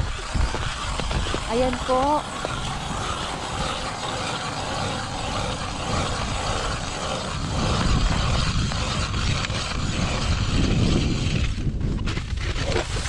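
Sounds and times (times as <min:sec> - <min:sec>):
ice auger grinding through ice: 0:00.0 - 0:13.0
low rumble: 0:00.0 - 0:13.0.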